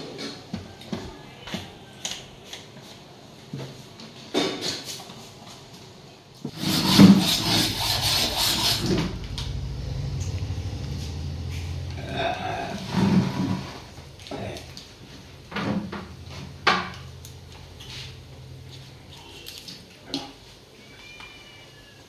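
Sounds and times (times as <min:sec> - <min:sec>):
steady low hum: 0:06.6 - 0:19.4.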